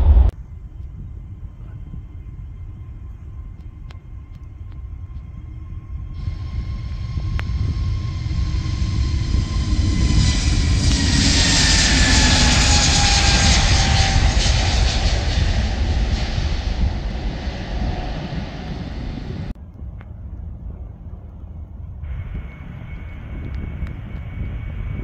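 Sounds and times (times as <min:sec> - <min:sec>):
jet engine roar at take-off: 0:06.2 - 0:19.6.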